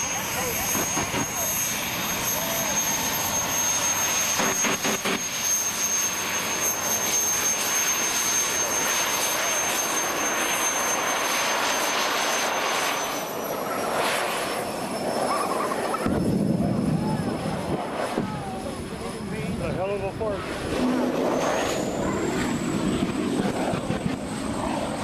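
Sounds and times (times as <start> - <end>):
jet engine whine: 0.0 - 25.0.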